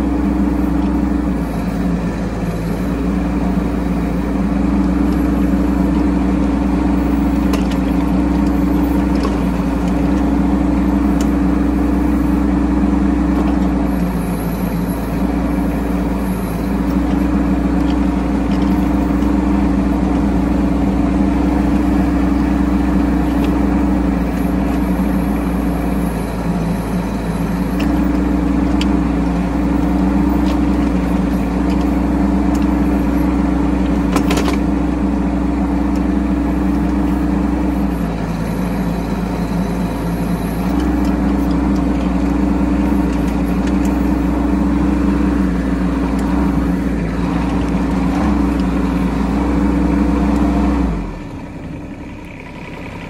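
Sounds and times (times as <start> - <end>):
small diesel engine running: 0.0 - 53.0.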